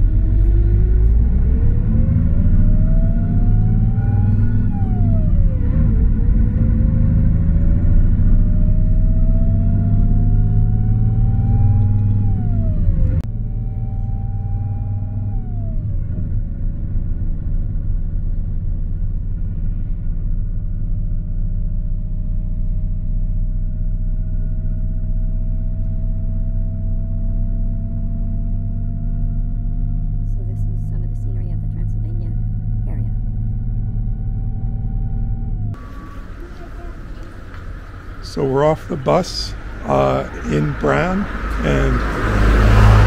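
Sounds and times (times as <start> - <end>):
bus engine accelerating: 0.0 - 43.0
steady low rumble: 0.0 - 43.0.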